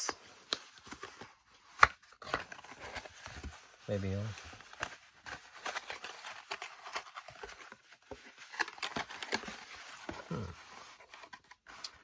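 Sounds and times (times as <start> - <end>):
card being folded and rustled: 0.0 - 12.0.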